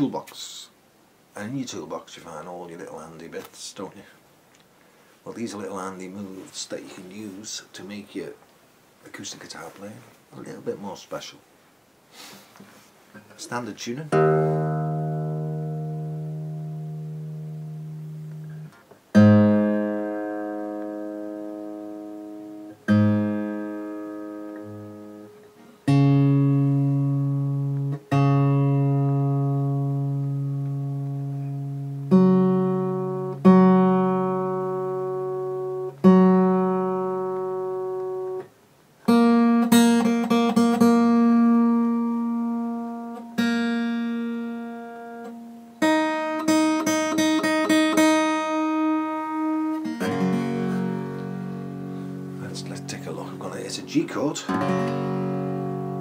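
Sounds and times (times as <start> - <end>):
acoustic guitar chords: 13.1 - 56.0.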